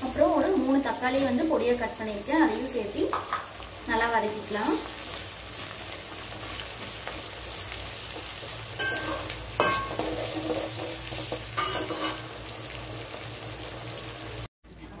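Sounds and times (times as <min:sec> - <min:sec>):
vegetables sizzling in hot oil: 0:00.0 - 0:14.5
spoon scraping and knocking pan: 0:08.1 - 0:12.3.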